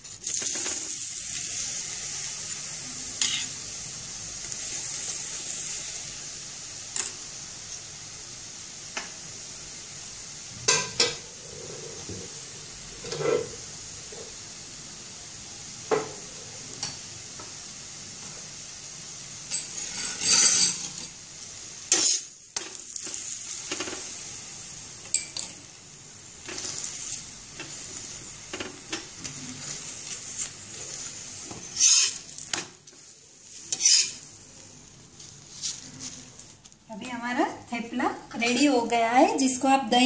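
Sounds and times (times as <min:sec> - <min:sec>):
flatbread sizzling in oil: 0:00.0 - 0:40.0
steel spatula scraping pan: 0:03.2 - 0:03.6, 0:13.0 - 0:13.6, 0:19.5 - 0:21.2, 0:21.9 - 0:22.3, 0:29.5 - 0:32.3, 0:33.6 - 0:34.2.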